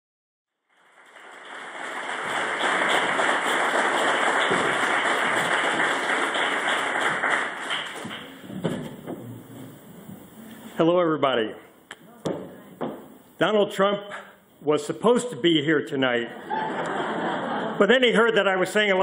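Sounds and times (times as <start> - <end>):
audience applauding: 0.6 - 9.8.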